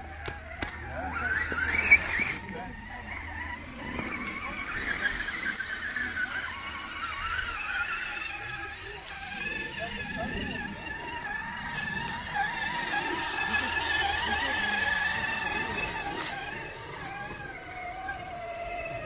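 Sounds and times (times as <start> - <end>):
electric motor and gears whining: 0.0 - 19.0.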